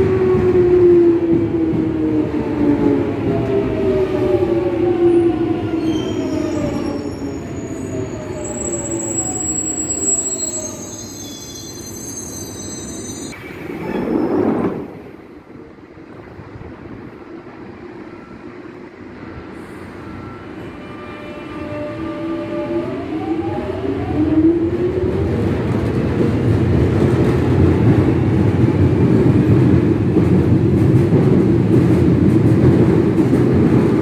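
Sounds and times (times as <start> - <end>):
brake and wheel squeal: 5.8 - 14.5.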